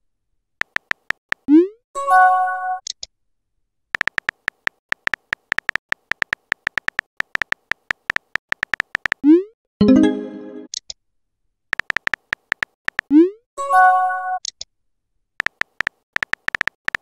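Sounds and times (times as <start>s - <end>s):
rapid keyboard tap clicks: 0.6s - 1.4s, 4.0s - 9.2s, 11.7s - 13.1s, 15.4s - 17.0s
message chime: 9.8s - 10.7s.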